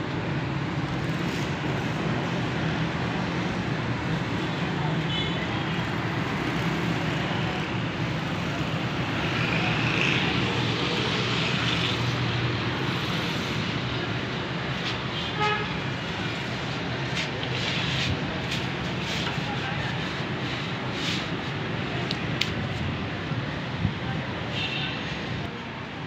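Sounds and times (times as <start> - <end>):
traffic noise: 0.0 - 26.0
vehicle horn: 15.2 - 15.8.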